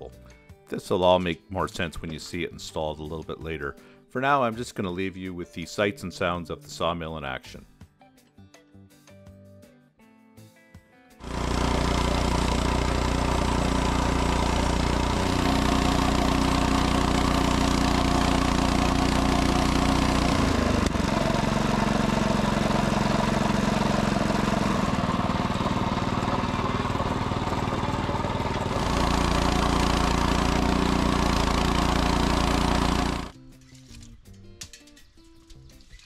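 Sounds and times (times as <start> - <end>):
sawmill engine running: 11.2 - 33.4.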